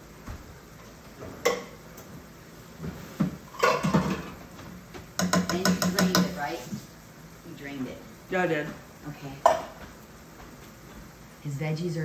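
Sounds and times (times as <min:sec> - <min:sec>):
tin can clanking against pot: 0:03.5 - 0:04.4, 0:05.2 - 0:06.4
can knocking on pot rim: 0:05.2 - 0:06.4.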